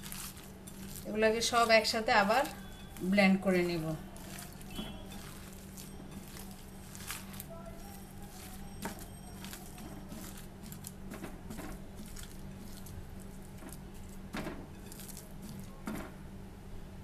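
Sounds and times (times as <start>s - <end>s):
hands squishing wet meat mixture: 0.0s - 16.2s.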